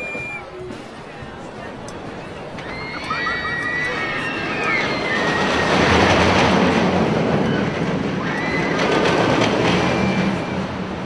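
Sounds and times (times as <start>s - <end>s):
high wheel squeals: 0.0s - 0.6s, 9.6s - 10.9s
ride cars rumbling on rail track: 0.0s - 11.0s.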